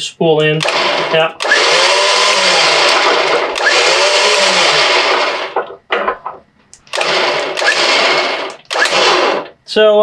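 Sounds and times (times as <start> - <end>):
electric winch motor whining: 0.7 - 5.8, 6.8 - 9.6.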